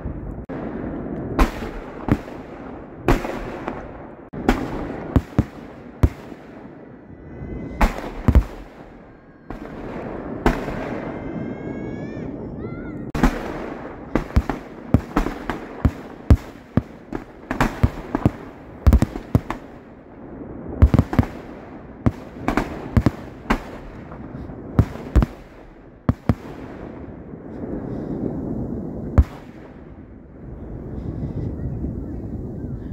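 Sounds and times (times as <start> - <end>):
fireworks crackling: 0.4 - 6.8, 7.7 - 11.2, 13.1 - 20.0, 20.6 - 27.7.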